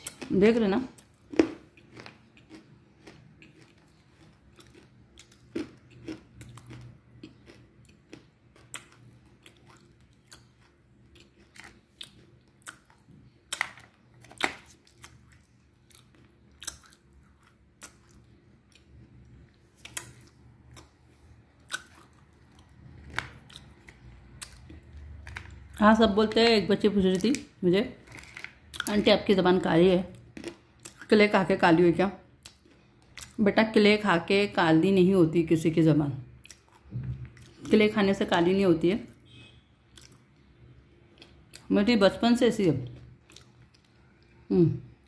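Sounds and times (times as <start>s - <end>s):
person chewing crunchy clay: 0.0s - 25.8s, 28.0s - 28.9s, 30.1s - 31.1s, 39.3s - 40.5s, 42.9s - 44.4s.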